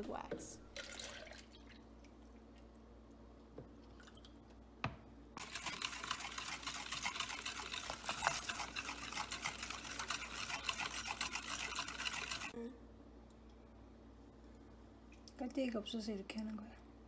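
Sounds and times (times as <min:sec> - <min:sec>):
whisk clattering in plastic bowl: 0:05.4 - 0:12.5.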